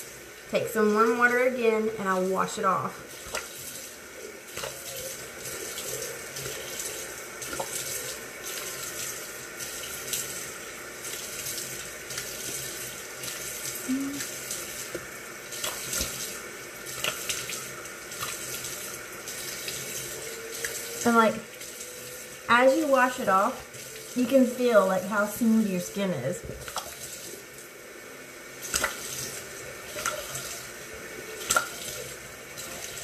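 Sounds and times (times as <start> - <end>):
water splashing on face: 28.6 - 30.6, 31.4 - 33.0.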